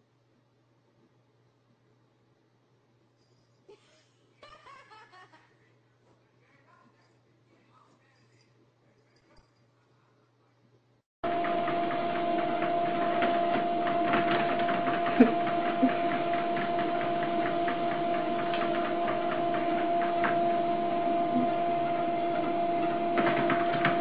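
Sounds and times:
machine whirring hum: 11.2 - 24.0.

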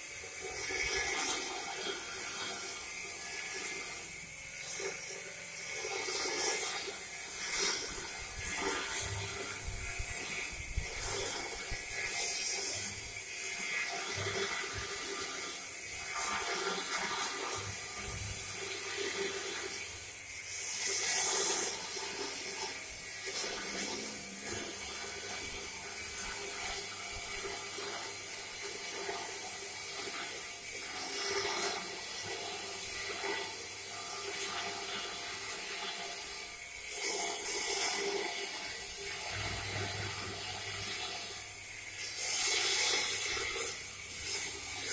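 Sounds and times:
plate rolling machine whirring: 0.0 - 44.9.

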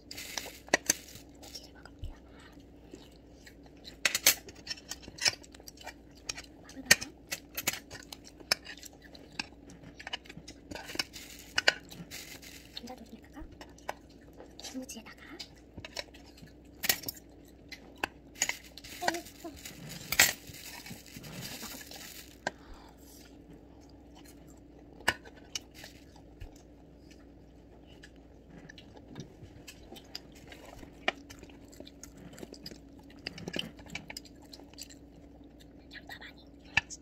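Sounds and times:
utensils clinking on metal trays: 18.4 - 22.4.

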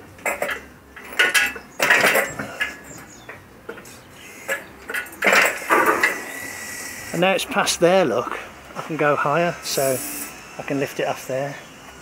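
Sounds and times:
metal clinking and rattling: 0.2 - 3.0
hydraulic crane being pumped: 9.6 - 10.8.

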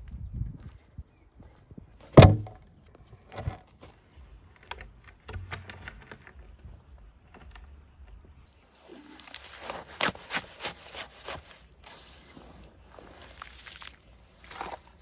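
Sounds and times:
heavy wooden log thud: 2.0 - 2.7
wood knocks and scrapes: 2.1 - 3.9.

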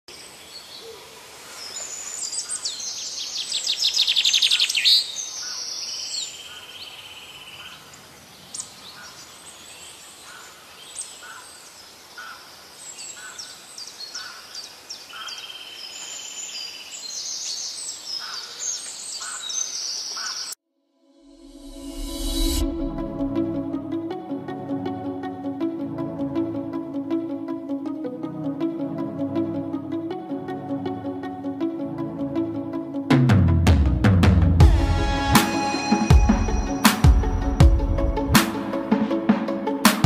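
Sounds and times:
birds chirping: 0.1 - 20.6
long high bird notes: 34.6 - 39.8.

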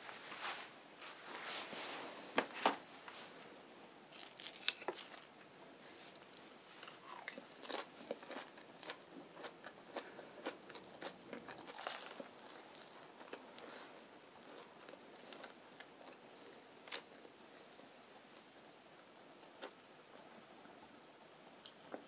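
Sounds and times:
chewing crisp salad leaves: 4.1 - 16.2.

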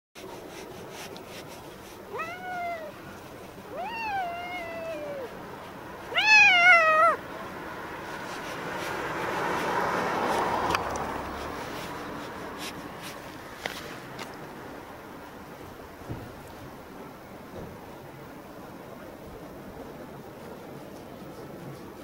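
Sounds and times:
cat meowing: 2.1 - 5.4, 6.0 - 7.2.

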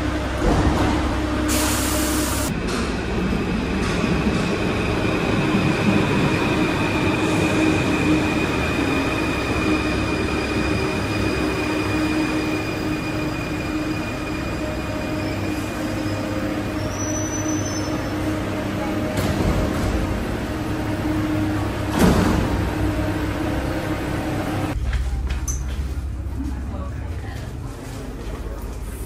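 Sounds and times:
train rumble: 0.0 - 29.0
train braking squeal: 6.8 - 18.3.

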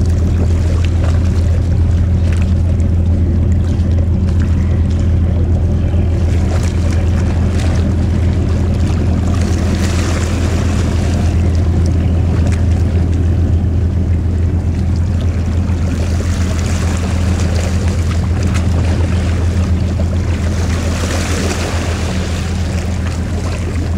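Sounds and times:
boat engine drone: 0.0 - 23.9
water rushing: 0.0 - 23.9.

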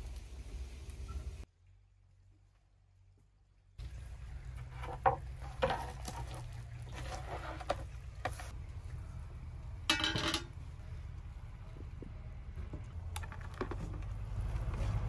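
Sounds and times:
knocks and rustles: 4.6 - 8.6, 11.8 - 15.0
metal ladle scraping pot: 4.6 - 8.6.

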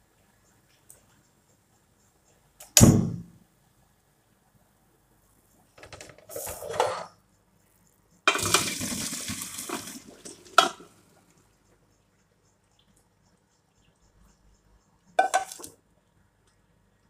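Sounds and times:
water splashing into colander: 8.3 - 11.1, 15.2 - 15.8.

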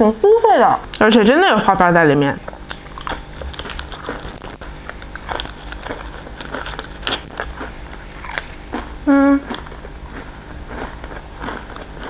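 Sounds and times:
crunching and chewing biscuit: 2.4 - 12.0.

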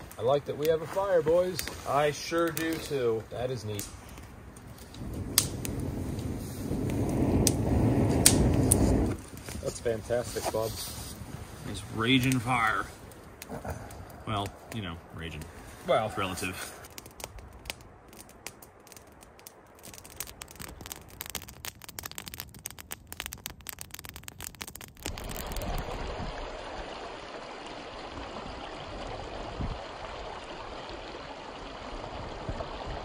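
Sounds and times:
campfire crackling and popping: 0.0 - 33.0
running water rushing: 25.0 - 33.0.

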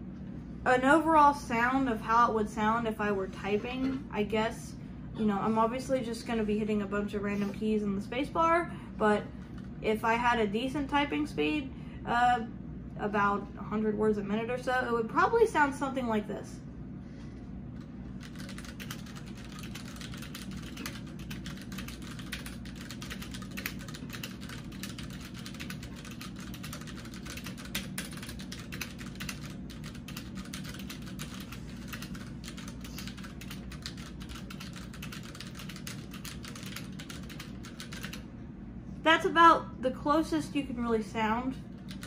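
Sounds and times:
fast typing on mechanical keyboard: 18.2 - 38.2, 41.8 - 42.0.

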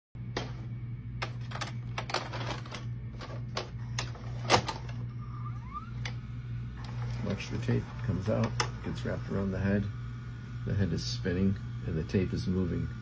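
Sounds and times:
steady low hum: 0.2 - 13.0
tape mechanism clicks and clatter: 1.2 - 5.0.

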